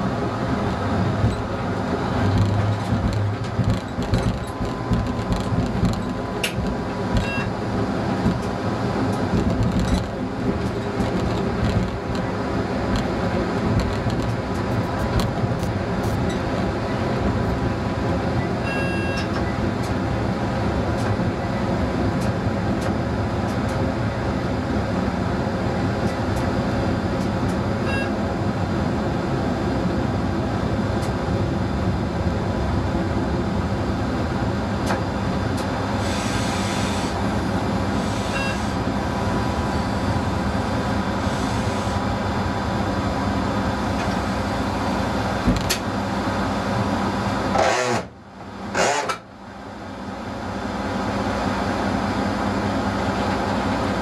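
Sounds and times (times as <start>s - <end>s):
diesel railcar running: 0.0s - 54.0s
hiss: 36.0s - 37.2s.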